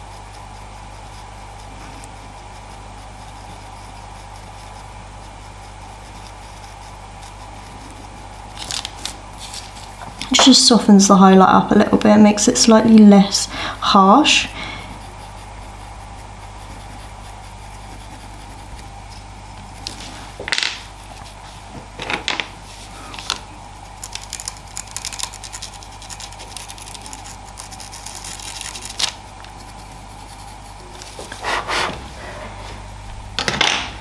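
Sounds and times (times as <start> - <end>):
pencil scratching on paper: 0.0 - 10.6, 12.3 - 21.6, 23.8 - 32.8
steady background hum: 0.0 - 34.0
brushing rustles: 8.6 - 10.7, 14.1 - 21.8, 22.6 - 23.4, 25.5 - 32.9.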